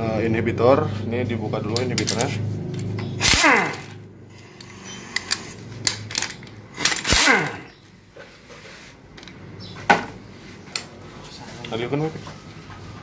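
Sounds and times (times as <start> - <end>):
metal hand tools clinking: 1.7 - 3.8, 4.4 - 7.3
rasping burst: 3.2 - 5.6, 6.7 - 7.7.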